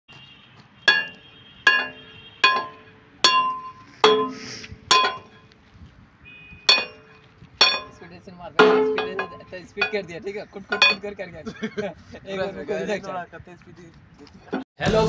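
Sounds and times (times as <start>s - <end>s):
steel bar clanking on metal pin: 0.9s - 5.4s, 6.7s - 10.1s, 10.7s - 11.1s.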